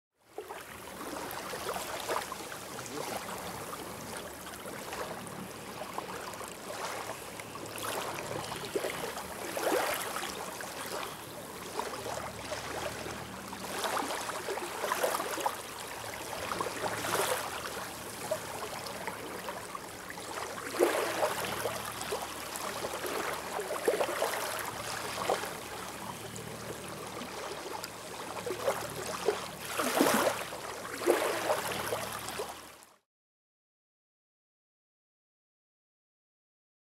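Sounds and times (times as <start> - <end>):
small water splashes: 0.2 - 32.9
water lapping and trickling: 0.2 - 33.0.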